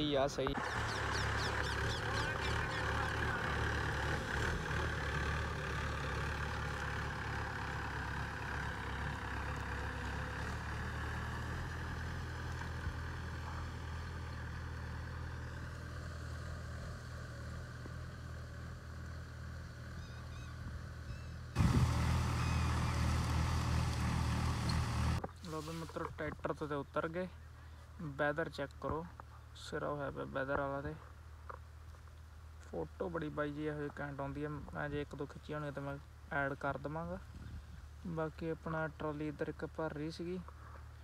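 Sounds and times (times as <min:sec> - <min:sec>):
vehicle engine humming: 0:00.0 - 0:28.2.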